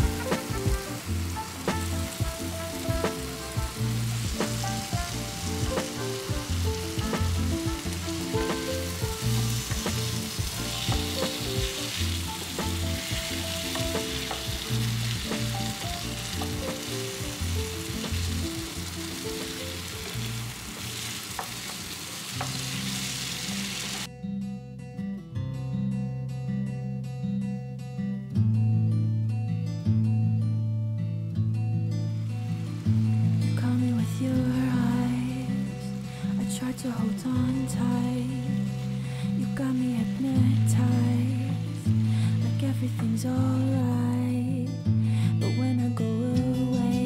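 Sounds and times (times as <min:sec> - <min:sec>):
food sizzling in a skillet: 0:00.0 - 0:24.1, 0:32.2 - 0:43.3
soft background music: 0:00.0 - 0:24.8, 0:25.8 - 0:47.0.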